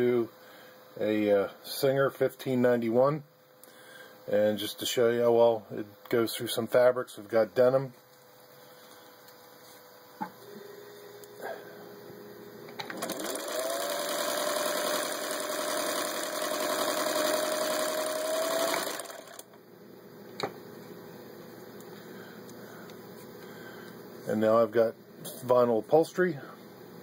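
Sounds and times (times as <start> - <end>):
sewing machine motor whining: 12.9 - 19.6.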